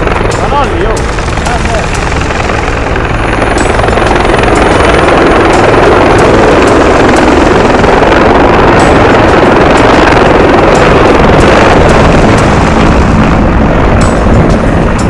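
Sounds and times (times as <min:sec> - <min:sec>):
helicopter rotor and turbine: 0:00.0 - 0:15.0.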